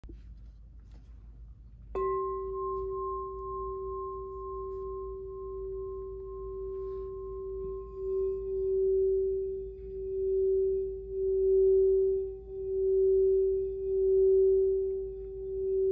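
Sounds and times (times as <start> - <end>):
wand rubbing bowl rim: 2.0 - 13.4
singing bowl ringing: 2.0 - 15.9.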